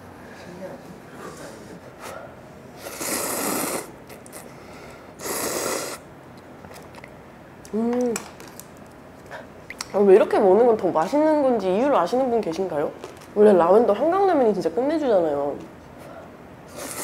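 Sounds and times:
noodles slurped: 2.8 - 4.5, 16.7 - 17.0
person humming: 7.7 - 8.2.

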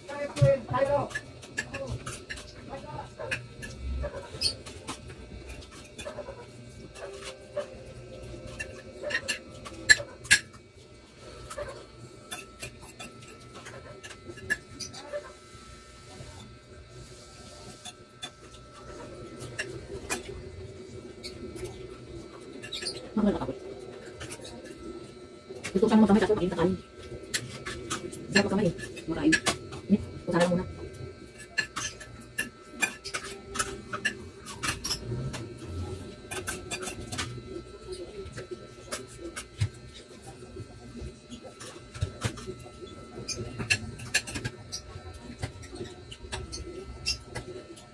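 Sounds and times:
cutlery scraping a ceramic plate: 3.2 - 7.7, 8.4 - 10.6, 11.4 - 15.3, 17.6 - 20.3, 22.6 - 23.5, 31.3 - 35.5, 36.3 - 37.4, 43.2 - 47.5.

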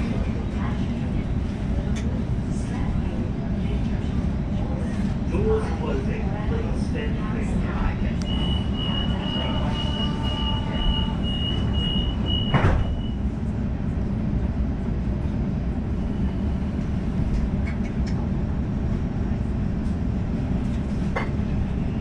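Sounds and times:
train carriage rumble: 0.0 - 22.0.

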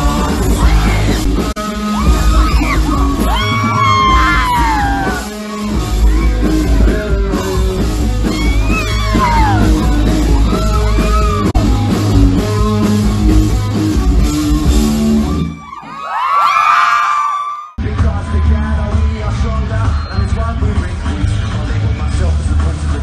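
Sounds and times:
person shouting and singing: 0.0 - 12.9
live rock band playing: 0.0 - 16.0, 17.8 - 23.0.

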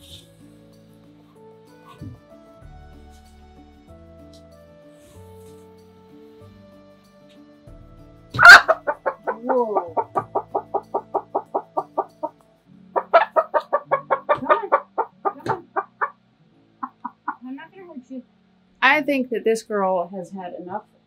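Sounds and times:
hen cackling in rapid clucks: 8.4 - 12.4, 13.0 - 16.2, 16.8 - 17.4
hen squawking: 8.4 - 12.4, 13.0 - 16.2, 16.8 - 17.4.

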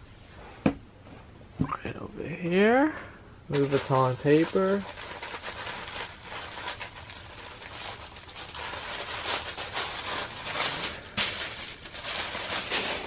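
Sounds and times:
tissue paper rustling: 3.5 - 13.0.

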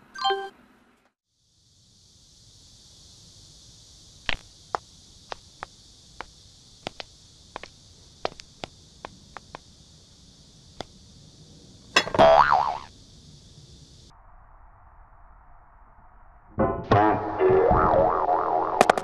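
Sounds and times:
steady hiss: 1.3 - 14.1.

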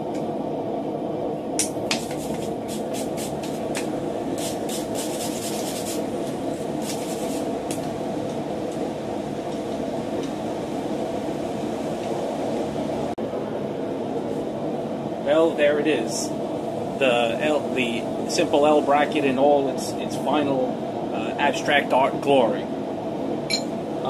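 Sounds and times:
steady background roar: 0.0 - 24.0
wire brush scrubbing metal: 4.4 - 6.1.

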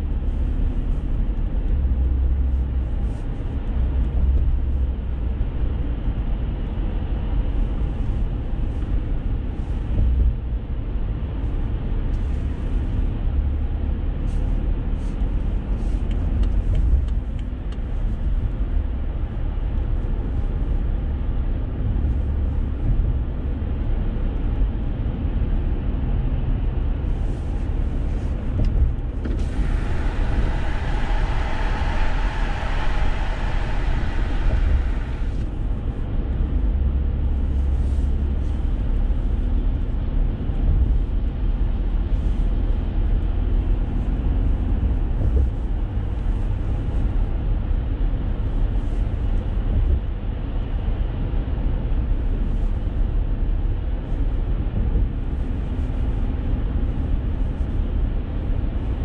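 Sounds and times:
car road noise rumble: 0.0 - 59.0
bright hiss: 29.4 - 35.5.

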